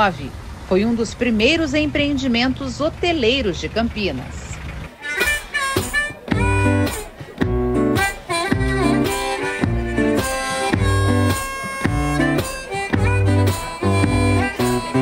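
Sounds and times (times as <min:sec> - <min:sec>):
acoustic guitar playing: 0:04.9 - 0:15.0
harmonica long notes: 0:05.0 - 0:15.0
steady low beat: 0:05.1 - 0:15.0.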